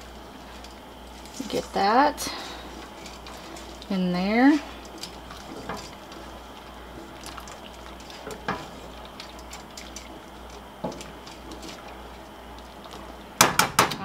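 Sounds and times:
boiling water bubbling: 0.0s - 14.0s
utensil clatter: 0.5s - 14.0s
utensil knocks: 13.4s - 14.0s.

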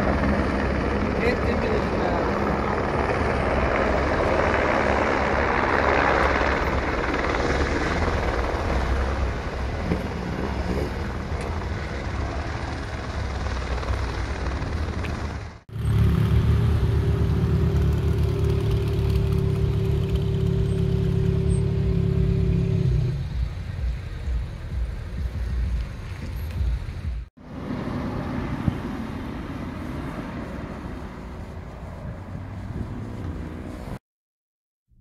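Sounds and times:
helicopter flying past: 0.0s - 24.3s.

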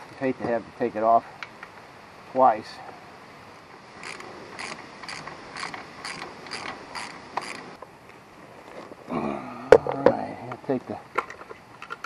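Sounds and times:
socket ratchet clicking: 4.0s - 7.7s.

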